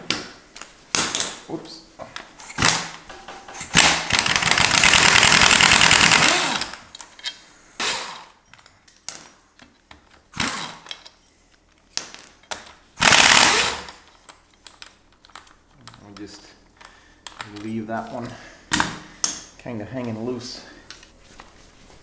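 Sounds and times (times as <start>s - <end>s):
pneumatic impact wrench hammering: 2.4s - 6.8s, 7.8s - 8.4s, 10.3s - 10.9s, 13.0s - 14.0s.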